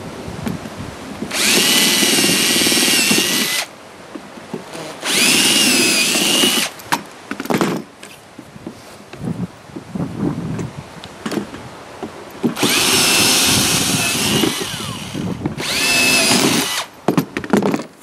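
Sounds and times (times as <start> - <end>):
cordless drill drilling into plastic: 1.3 - 3.7, 4.8 - 6.8, 12.6 - 16.9.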